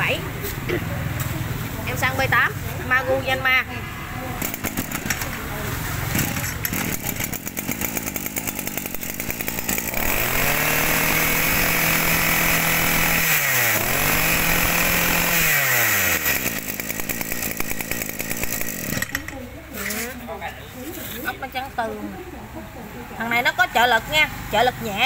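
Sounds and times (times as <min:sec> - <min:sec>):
brush cutter engine revving: 0:04.4 - 0:20.2.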